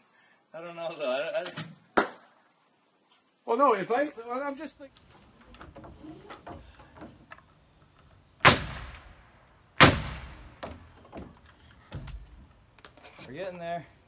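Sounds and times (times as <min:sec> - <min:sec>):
nail gun firing: 0:08.4 - 0:09.2, 0:09.8 - 0:10.9.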